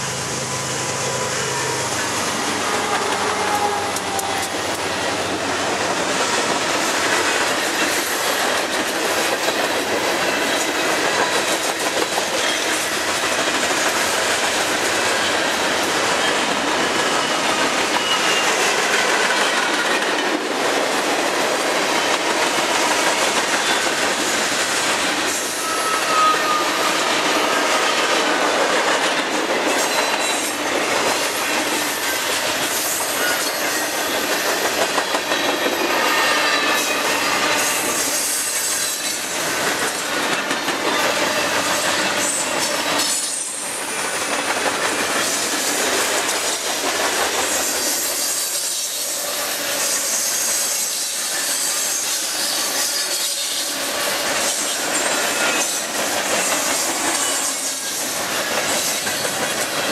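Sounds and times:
steel wheels rumbling on rail: 0:00.0 - 0:59.9
clickety-clack over rail joints: 0:02.3 - 0:59.9
high wheel squeals: 0:17.0 - 0:18.8, 0:25.4 - 0:27.7.

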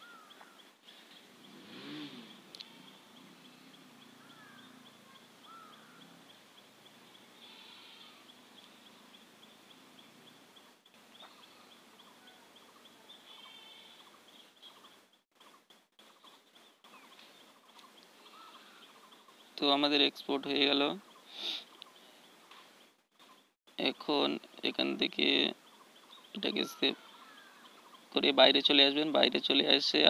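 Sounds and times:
faint bird chirps: 0:00.0 - 0:19.6.

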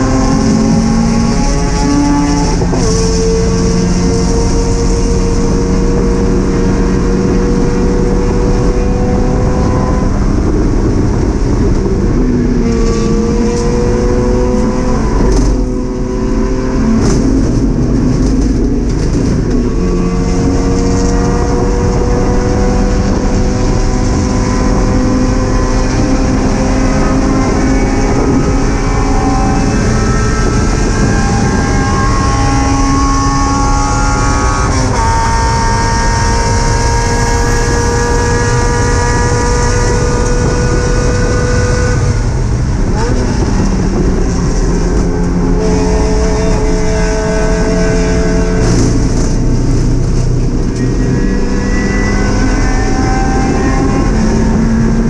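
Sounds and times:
race car engine pulling through gears: 0:00.0 - 0:55.0
road and wind noise: 0:00.0 - 0:55.0.

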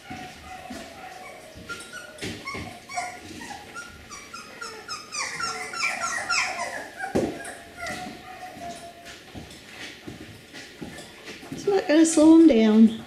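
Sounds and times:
puppies whimpering: 0:00.0 - 0:09.3.

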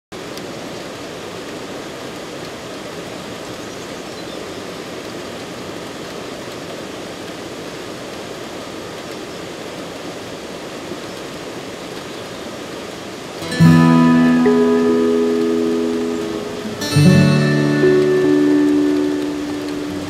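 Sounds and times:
steady rushing noise: 0:13.4 - 0:20.0.

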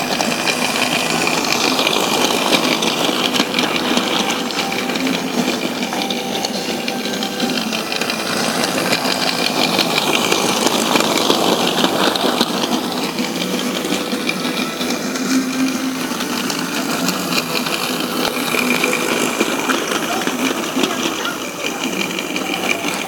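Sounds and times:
toy train motor buzzing: 0:00.0 - 0:23.0
wheels rattling on track: 0:00.0 - 0:23.0.

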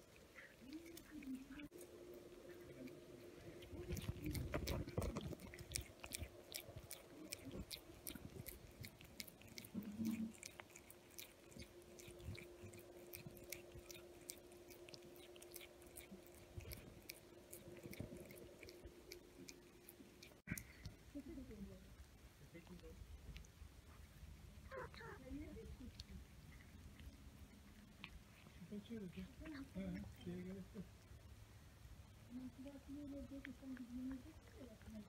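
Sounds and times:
cat chewing and licking: 0:00.0 - 0:35.0.

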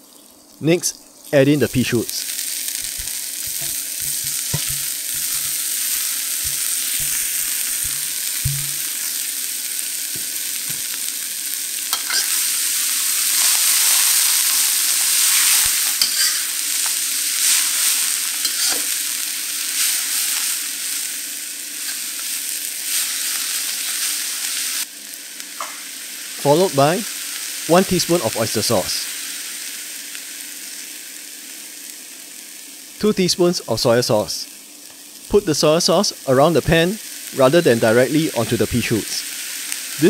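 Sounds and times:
vegetables sizzling in a wok: 0:00.0 - 0:33.6, 0:34.2 - 0:40.0
metal spatula scraping a wok: 0:02.9 - 0:09.0, 0:11.9 - 0:12.5, 0:15.3 - 0:16.5, 0:17.5 - 0:18.9.

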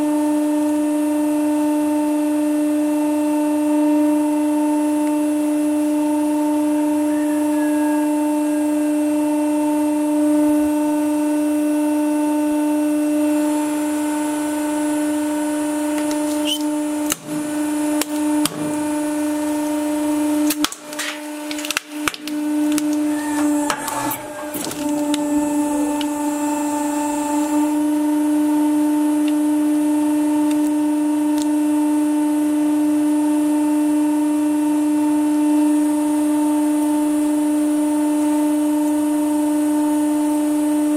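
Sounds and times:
hydraulic pump motor humming: 0:04.9 - 0:33.5
plastic bottle cracking under press: 0:20.4 - 0:23.1.

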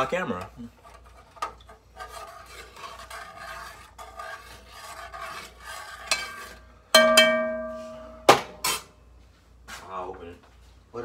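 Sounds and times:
spoon scraping metal pot: 0:00.0 - 0:08.0
spoon knocking on pot ringing: 0:07.0 - 0:08.4.

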